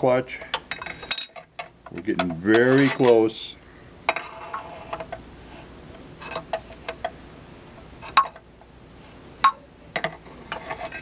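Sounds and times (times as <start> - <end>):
metal clinks and taps: 0.6 - 1.7.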